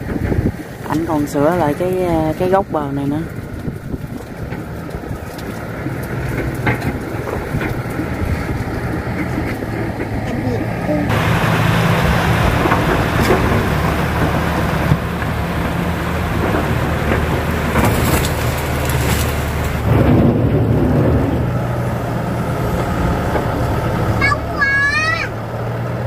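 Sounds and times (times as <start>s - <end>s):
diesel engine low hum: 0.0s - 26.0s
heavy rain hissing: 11.1s - 24.4s.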